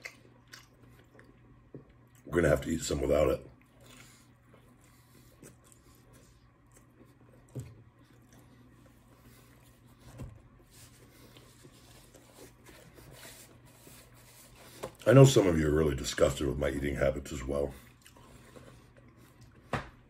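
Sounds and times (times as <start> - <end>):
faint chewing: 0.0 - 2.3, 3.5 - 15.1, 17.7 - 19.7.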